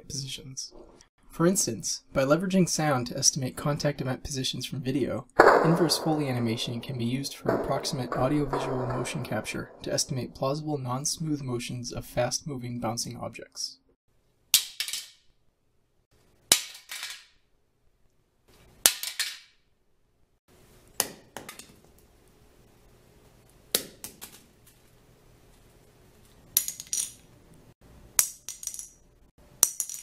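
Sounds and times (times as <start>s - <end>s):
objects dropping on concrete floor: 14.6s - 15.2s, 16.5s - 17.4s, 18.9s - 19.6s, 26.6s - 27.3s, 28.2s - 30.0s.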